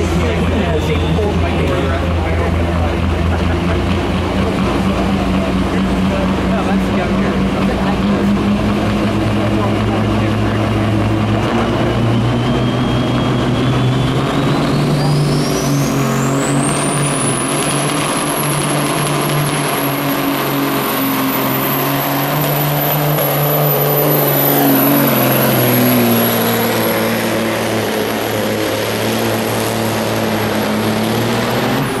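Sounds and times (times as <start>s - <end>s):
diesel truck engine at full throttle: 0.0s - 32.0s
high turbocharger whistle: 9.5s - 32.0s.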